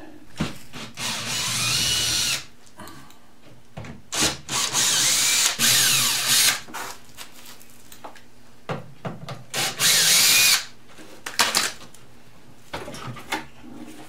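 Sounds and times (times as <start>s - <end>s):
cordless drill motor whine: 1.0s - 2.4s, 4.2s - 6.6s, 9.6s - 10.7s.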